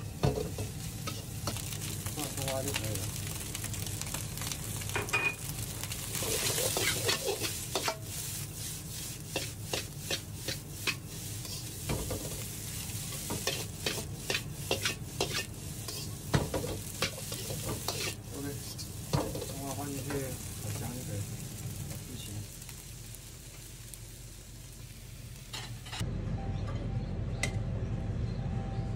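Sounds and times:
rice sizzling: 0:00.0 - 0:26.0
metal spatula scraping a wok: 0:06.1 - 0:20.1.

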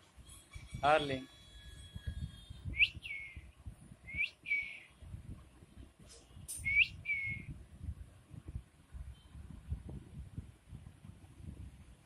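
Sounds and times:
person whistling: 0:06.6 - 0:07.4.

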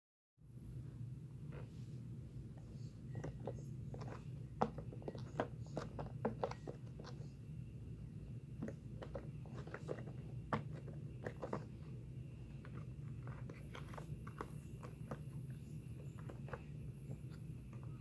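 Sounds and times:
steady low hum: 0:00.4 - 0:18.0.

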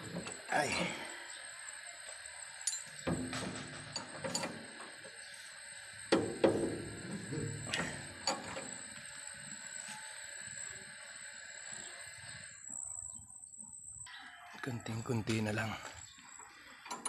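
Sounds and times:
metal parts clicking and clanking: 0:02.1 - 0:05.2, 0:06.1 - 0:09.0, 0:16.8 - 0:17.0.

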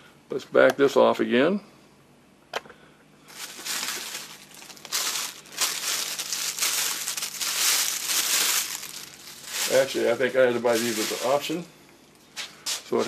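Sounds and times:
packaging crinkling: 0:03.3 - 0:11.6.

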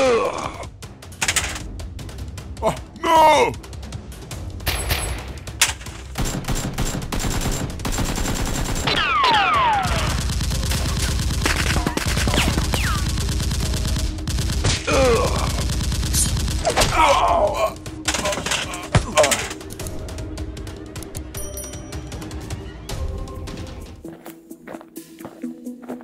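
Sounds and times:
rapid automatic gunfire: 0:06.2 - 0:16.8.

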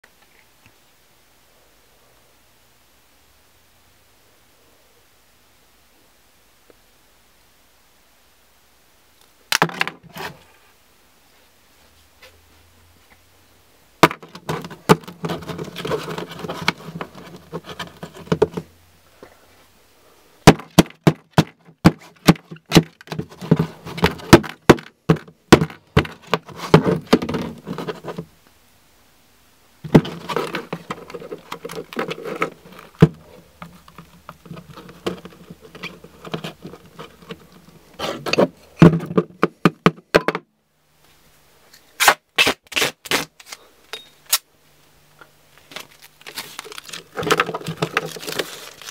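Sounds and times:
rustling: 0:14.0 - 0:28.3, 0:29.8 - 0:39.6, 0:45.5 - 0:48.9.

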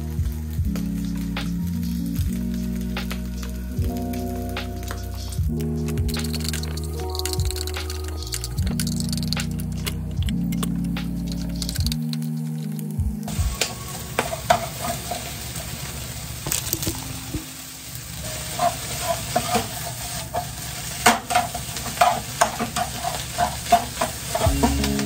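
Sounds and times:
rice sizzling in frying pan: 0:00.0 - 0:09.0, 0:13.3 - 0:25.0
spatula clacking and scraping pan: 0:14.2 - 0:15.3, 0:18.3 - 0:25.0.

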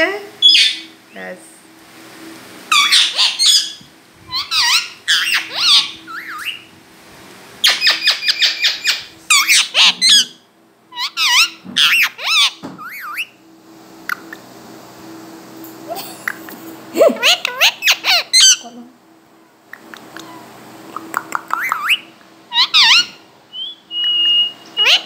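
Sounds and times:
parakeet calling: 0:00.4 - 0:01.0, 0:02.7 - 0:06.7, 0:07.6 - 0:13.4, 0:15.9 - 0:18.7, 0:20.1 - 0:25.0.

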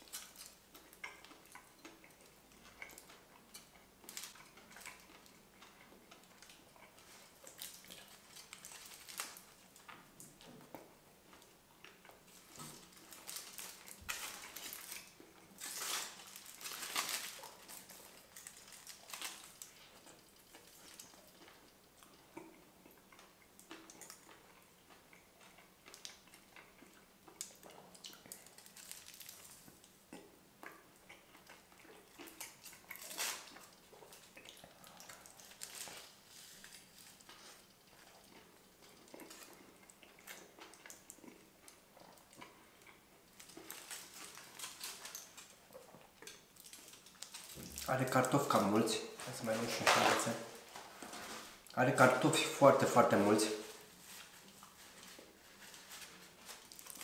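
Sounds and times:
aluminium foil crinkling: 0:00.0 - 0:01.9, 0:02.7 - 0:10.0, 0:12.3 - 0:21.6, 0:27.4 - 0:29.9, 0:32.4 - 0:38.3, 0:43.3 - 0:57.0
chewing and mouth sounds: 0:00.0 - 0:51.8, 0:53.6 - 0:57.0.

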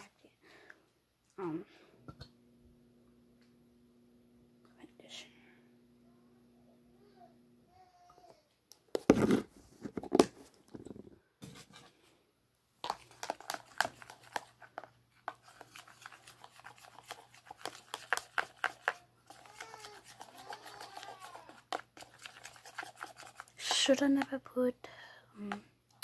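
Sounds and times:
knocks and rustles of handling: 0:08.8 - 0:12.2
utensil scraping bowl: 0:12.8 - 0:24.3.

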